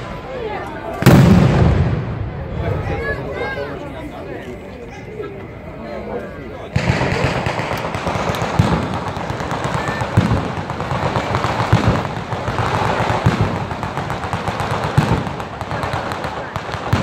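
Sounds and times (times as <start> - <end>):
rapid firecracker crackle: 1.0 - 2.7, 6.7 - 17.0
heavy firework booms: 1.0 - 3.0, 6.7 - 17.0.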